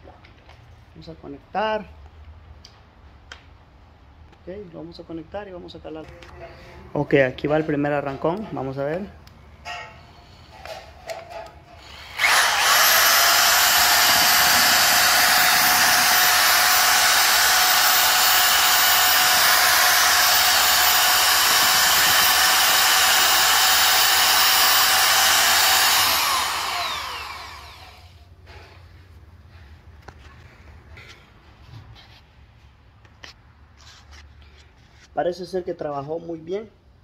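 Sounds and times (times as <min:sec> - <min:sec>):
paddle mixer motor whine: 0:12.0 - 0:28.1.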